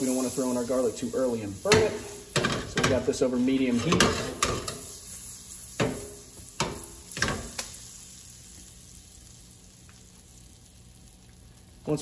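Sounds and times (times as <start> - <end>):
butter sizzling in skillet: 0.0 - 12.0.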